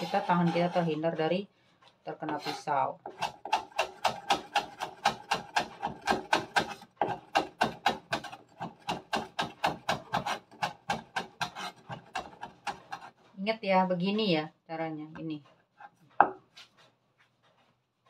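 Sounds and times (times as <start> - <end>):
knife chopping on wooden board: 2.3 - 13.1.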